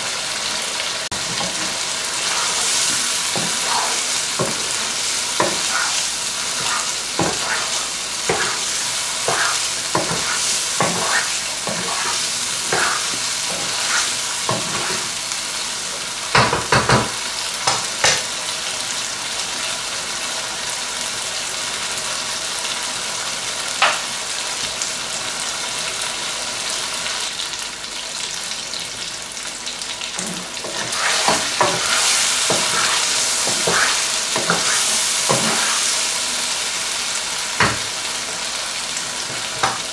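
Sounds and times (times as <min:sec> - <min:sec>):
chicken sizzling in a wok: 0:00.0 - 0:39.9
wooden spoon knocking on pan: 0:04.4 - 0:04.8, 0:06.6 - 0:07.6, 0:37.6 - 0:37.9.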